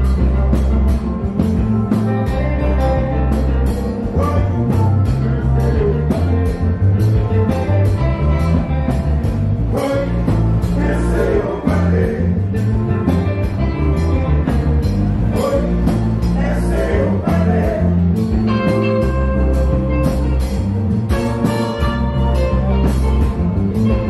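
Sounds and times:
guitar: 0:00.0 - 0:24.0
live band playing: 0:00.0 - 0:24.0
steady drum beat: 0:00.0 - 0:24.0
person singing: 0:04.1 - 0:06.4, 0:09.7 - 0:12.6, 0:15.3 - 0:18.8.

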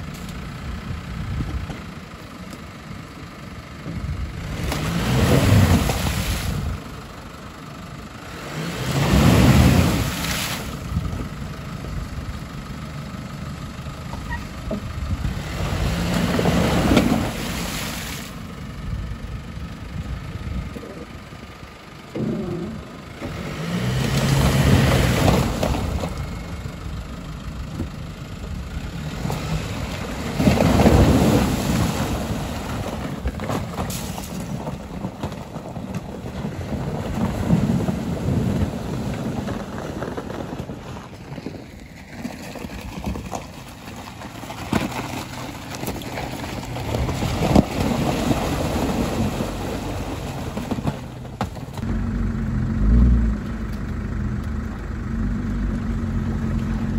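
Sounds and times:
engines running under load: 0:00.0 - 0:56.9
tyres splashing through water: 0:42.3 - 0:51.4.

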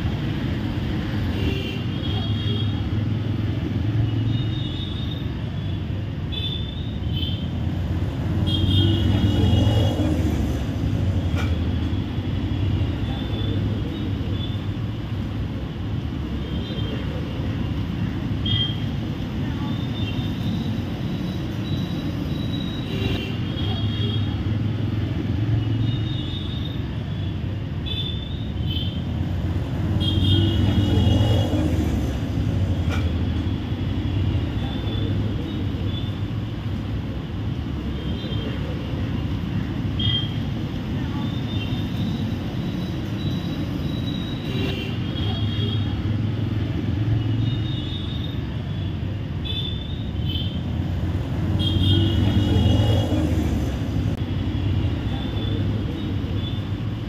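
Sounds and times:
traffic rumble: 0:00.0 - 0:57.0.

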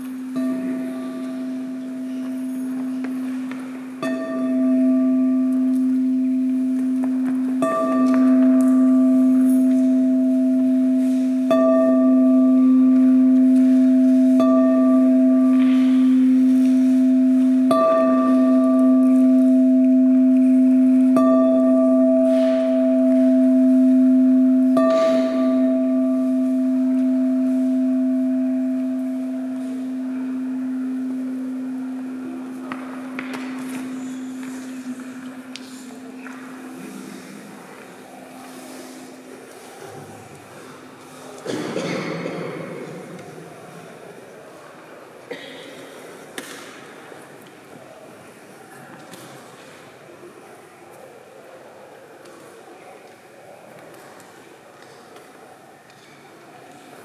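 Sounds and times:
low humming tone: 0:00.0 - 0:39.1
singing bowl struck with mallet: 0:00.2 - 0:36.8.

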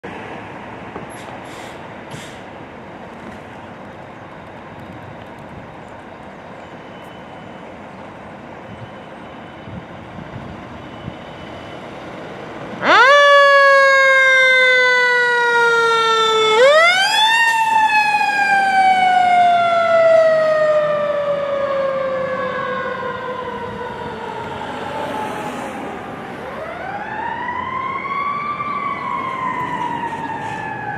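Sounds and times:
fire engine running: 0:00.2 - 0:30.9
fire engine siren wailing: 0:06.7 - 0:30.9.

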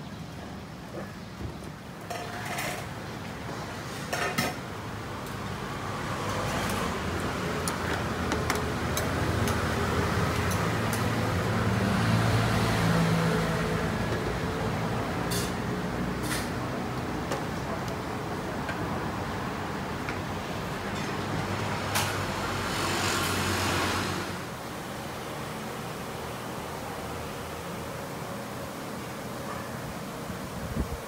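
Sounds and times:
dishes and utensils clinking: 0:15.3 - 0:15.6.

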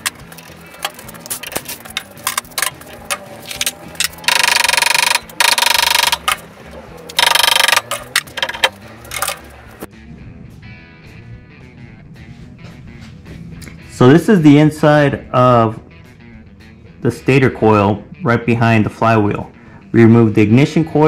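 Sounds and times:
impact driver rattling: 0:07.2 - 0:09.5.

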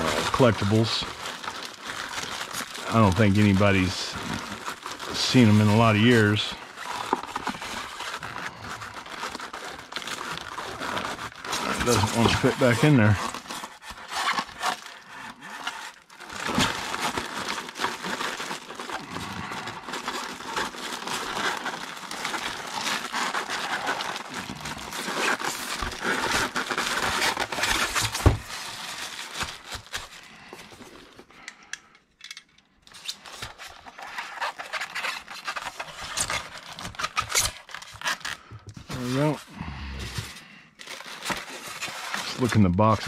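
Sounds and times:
styrofoam tray scraping: 0:00.0 - 0:30.8
plastic wrap crinkling: 0:00.0 - 0:31.5, 0:32.4 - 0:39.5, 0:40.1 - 0:43.0.

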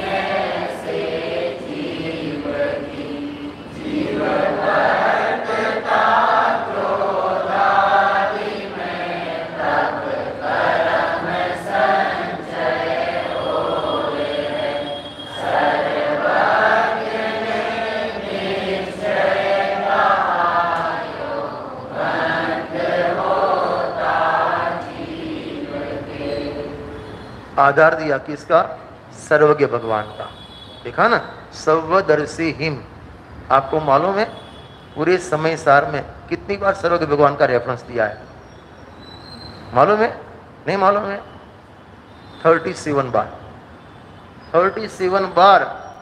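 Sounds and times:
group chanting devotional verse: 0:00.0 - 0:28.8.

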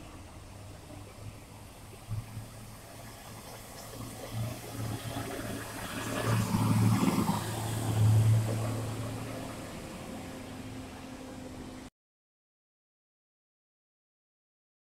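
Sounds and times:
bus driving past: 0:00.0 - 0:11.9.

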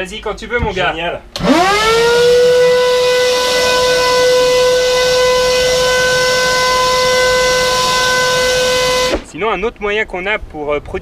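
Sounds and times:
vacuum cleaner motor whining: 0:01.4 - 0:09.4.

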